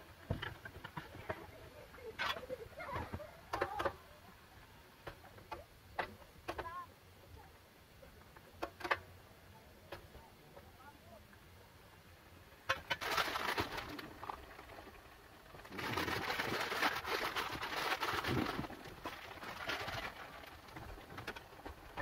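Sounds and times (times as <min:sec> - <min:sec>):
plastic packet crinkling: 0:12.9 - 0:14.6, 0:15.6 - 0:20.8.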